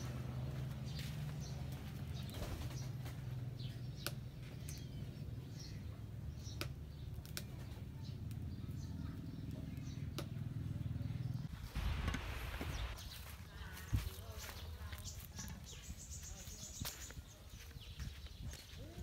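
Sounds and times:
steady low hum: 0:00.0 - 0:16.2
small birds chirping: 0:00.0 - 0:19.0
wood fire crackling: 0:06.5 - 0:08.8, 0:11.4 - 0:13.8.

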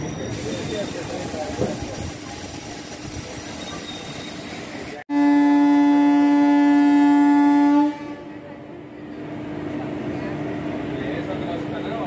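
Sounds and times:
moving train rumble: 0:00.0 - 0:12.0
train horn blast: 0:05.1 - 0:08.5.

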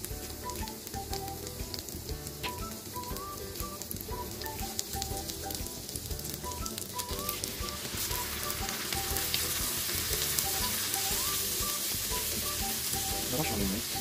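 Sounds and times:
garlic sizzling in hot oil: 0:00.0 - 0:14.0
spatula stirring in frying pan: 0:04.7 - 0:14.0.

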